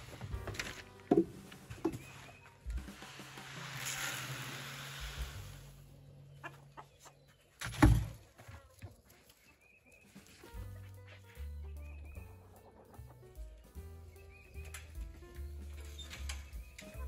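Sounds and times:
chickens clucking: 5.9 - 7.6, 8.3 - 17.0.

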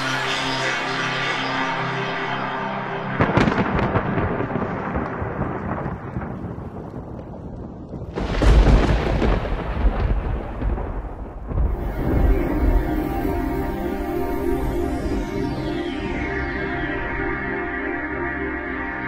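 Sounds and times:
thunder rumbling: 3.2 - 17.2.

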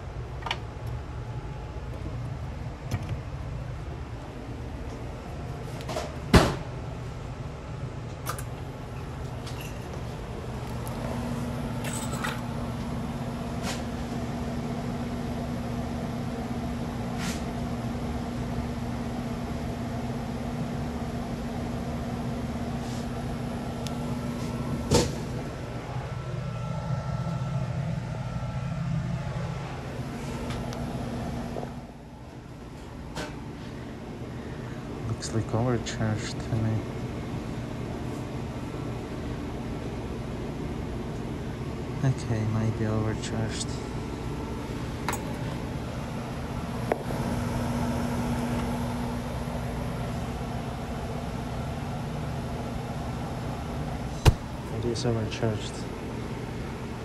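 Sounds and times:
freezer condensing unit hum: 0.0 - 57.0
sharp knock: 54.2 - 54.5.

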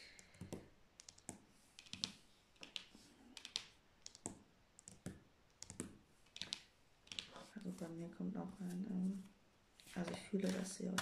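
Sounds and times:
fingers tapping on cards: 0.2 - 7.4.

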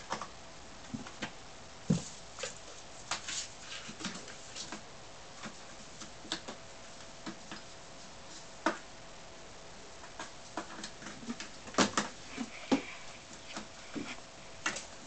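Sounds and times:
faint steady hum: 0.0 - 15.0
paws scrabbling on wood and cardboard: 10.0 - 15.0.

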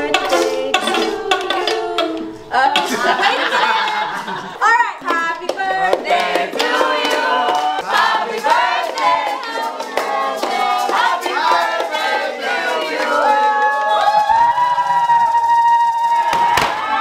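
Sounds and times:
group singing in unison: 0.0 - 14.8
hand claps: 5.0 - 14.4.

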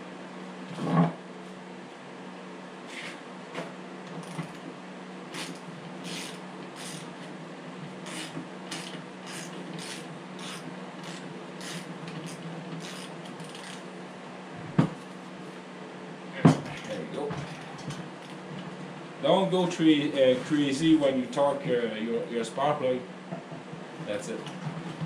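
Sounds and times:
steady low hum: 0.0 - 25.0
wrench rasping scrapes: 2.9 - 3.2, 5.3 - 7.1, 8.0 - 13.8.

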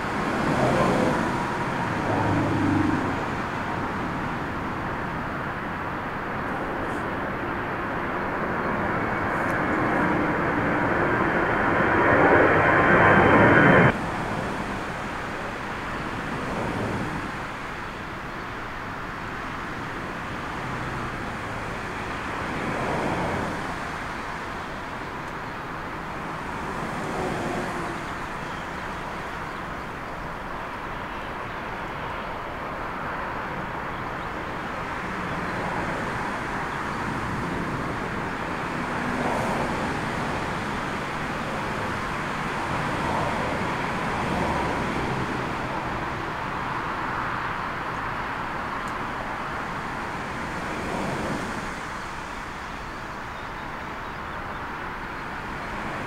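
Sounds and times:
turboprop engines landing: 0.0 - 18.2
storm wind rumble: 0.0 - 29.4.

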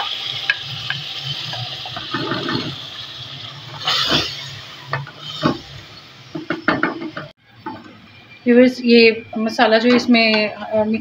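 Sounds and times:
chicken sizzling in oil: 0.0 - 6.8.

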